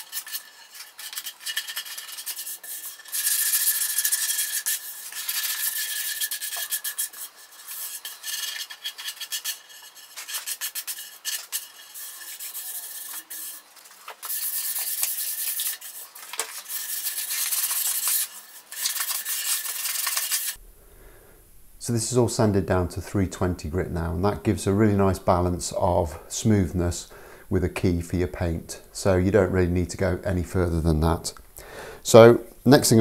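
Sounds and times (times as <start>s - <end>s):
sandpaper rubbing on wood: 0.0s - 20.6s.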